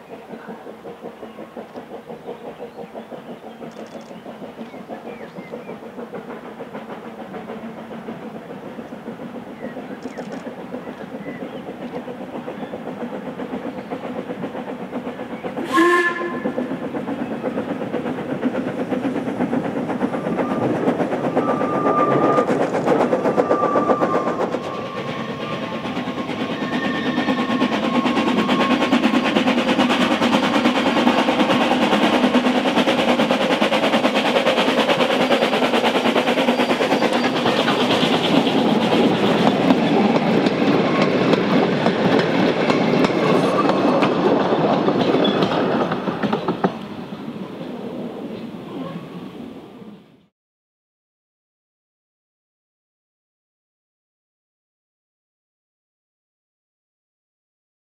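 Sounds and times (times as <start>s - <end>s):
steam locomotive rumble: 0.0s - 50.3s
steam whistle toot: 15.6s - 16.6s
wheels clattering over rail joints: 36.5s - 46.9s.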